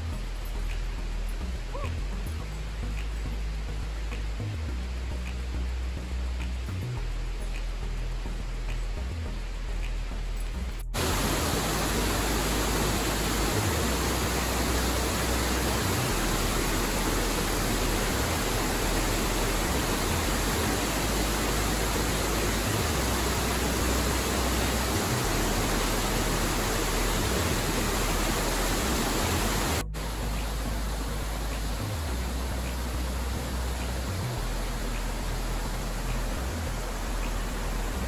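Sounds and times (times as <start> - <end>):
waterfall rushing: 11.0 - 38.0.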